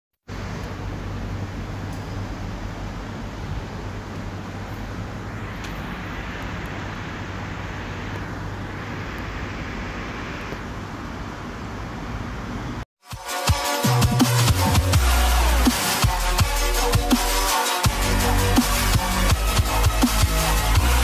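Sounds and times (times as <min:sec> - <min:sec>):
room noise hum and hiss: 0:00.3 - 0:12.8.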